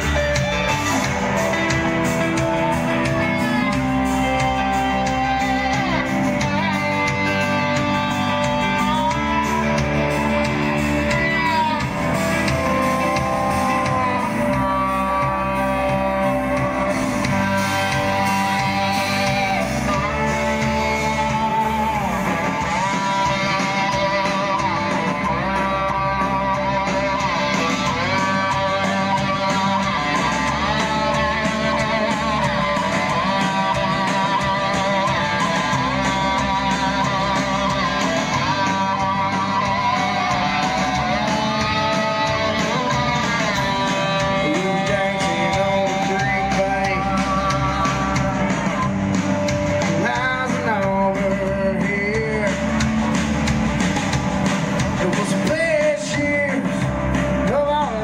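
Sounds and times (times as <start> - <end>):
rock band playing live: 0.0 - 58.0.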